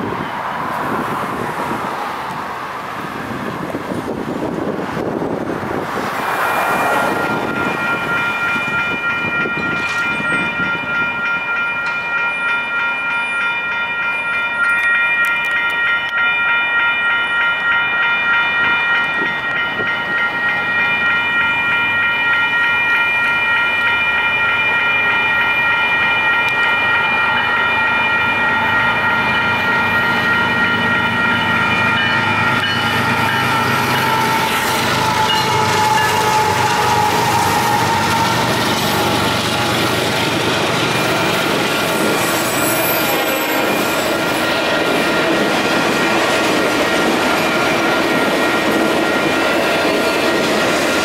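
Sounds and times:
freight train rumble: 0.0 - 51.0
crossing signal bells ringing: 2.2 - 51.0.

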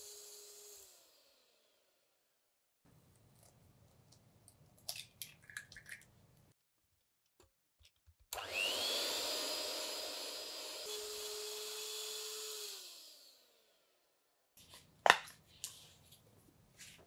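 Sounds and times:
stand mixer motor whine: 8.4 - 13.6.

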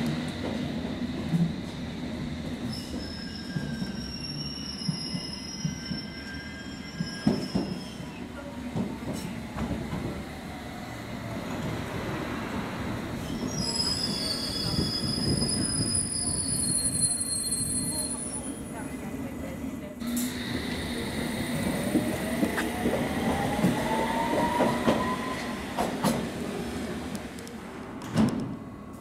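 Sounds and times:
train wheels squealing: 2.6 - 8.3, 13.2 - 18.7
train rumble: 19.8 - 29.0.

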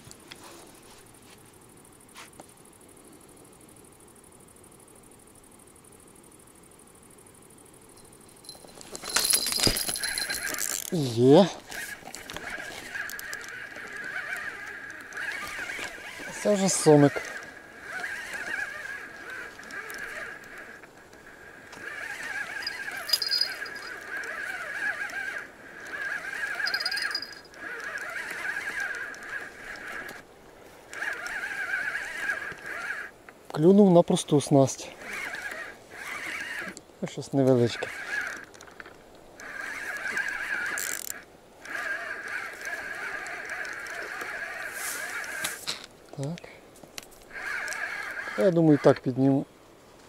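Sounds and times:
frogs croaking: 2.7 - 49.6
fishing reel whirring rattle: 8.0 - 30.3, 30.9 - 33.2, 35.0 - 36.8, 37.4 - 46.3, 47.2 - 49.1.

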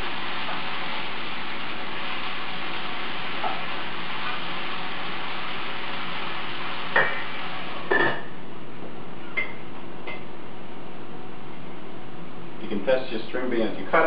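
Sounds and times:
vegetables sizzling in pan: 0.0 - 8.4.

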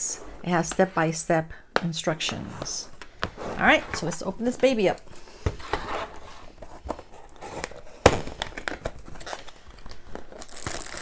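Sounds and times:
cardboard rustling and scraping: 3.2 - 8.0.

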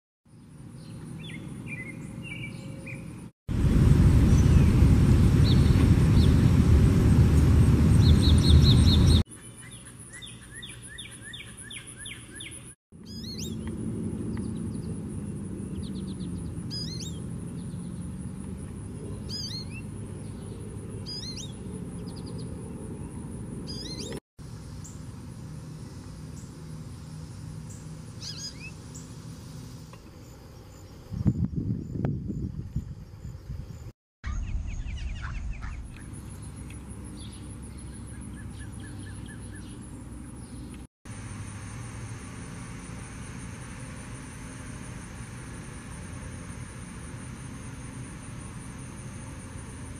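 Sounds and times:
birds calling and singing: 0.4 - 3.3, 7.9 - 18.3, 18.9 - 24.2, 27.6 - 40.9
loud rushing noise: 3.5 - 9.2
fast repeated bird trill: 16.7 - 17.2.

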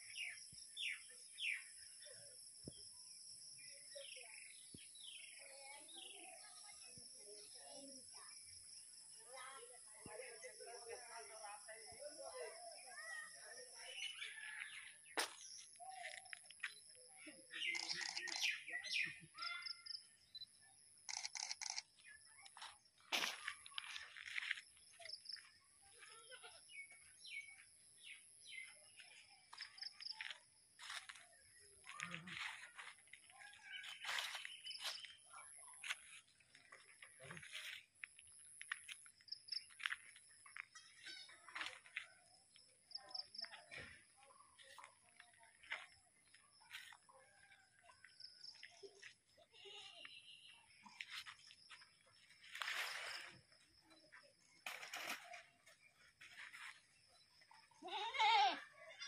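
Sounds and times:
bird chirps: 0.0 - 3.0, 12.7 - 22.6, 33.3 - 35.8
birds chirping: 12.2 - 47.0.

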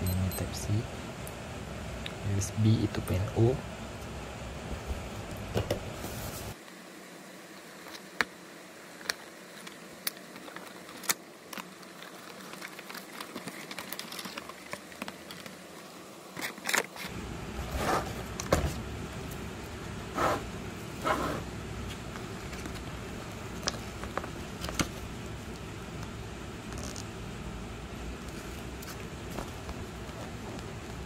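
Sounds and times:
plastic crinkling and rustling: 9.1 - 17.1.

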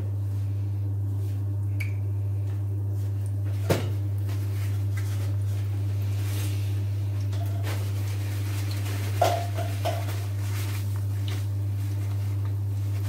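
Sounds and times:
low electrical hum: 0.0 - 13.0
bread frying in oil: 2.6 - 13.0.

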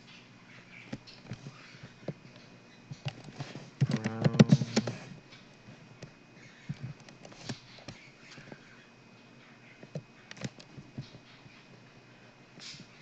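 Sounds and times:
keyboard typing: 3.8 - 4.9
computer mouse clicks: 9.9 - 10.7.

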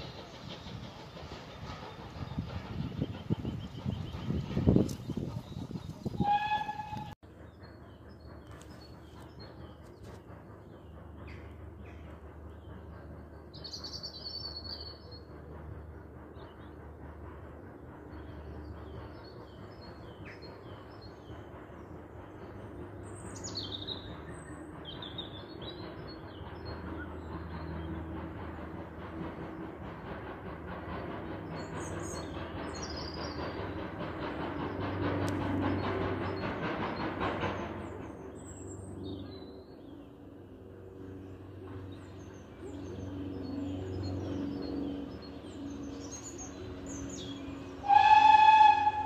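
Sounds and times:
steam train rumbling: 0.0 - 49.0
songbirds chirping: 16.2 - 49.0.

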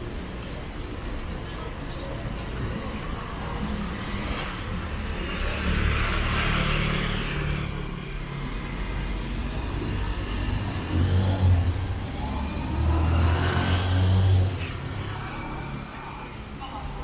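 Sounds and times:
car passing: 3.5 - 16.3
engine speeding up: 8.8 - 15.8.

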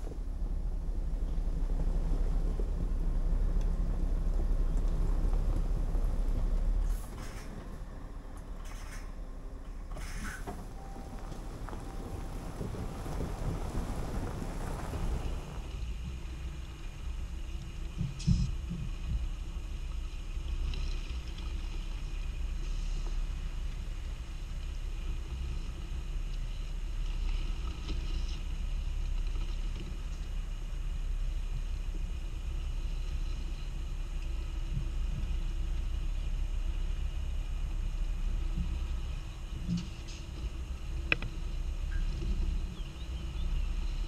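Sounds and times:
diesel truck engine rumbling: 0.0 - 44.0.

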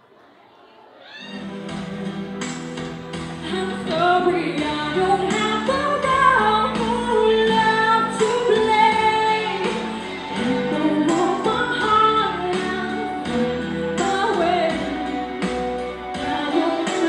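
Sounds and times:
instrumental backing music: 1.3 - 17.0
woman singing into a microphone: 3.4 - 17.0.

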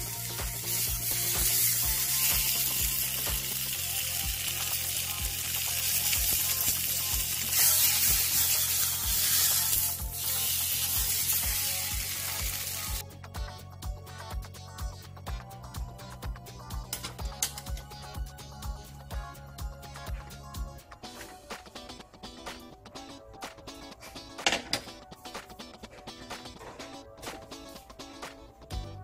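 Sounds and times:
ham sizzling in a pan: 0.0 - 13.0.

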